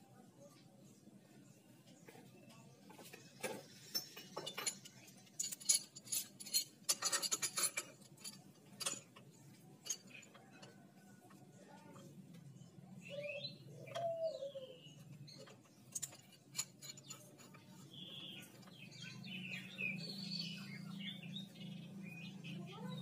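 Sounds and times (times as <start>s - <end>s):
small birds chirping: 9.4s - 23.0s.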